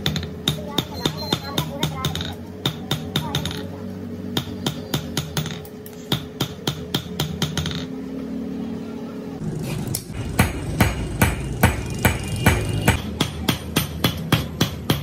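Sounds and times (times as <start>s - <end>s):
hammer striking steel on anvil: 9.9s - 15.0s.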